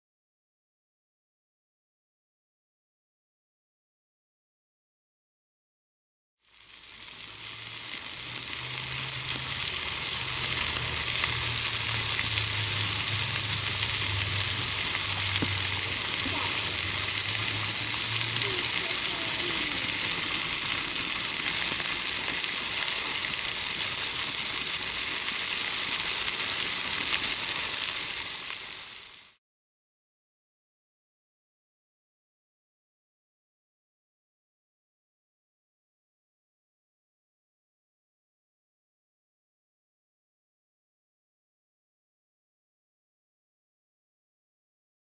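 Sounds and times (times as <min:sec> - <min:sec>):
pork sizzling on a griddle: 0:06.4 - 0:29.4.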